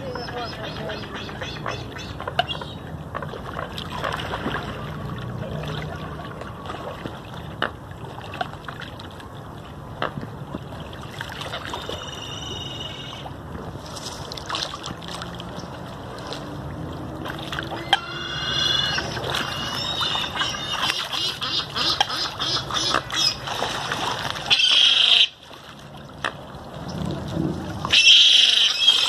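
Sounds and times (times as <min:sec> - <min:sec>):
water splashing from birds: 0:00.0 - 0:29.0.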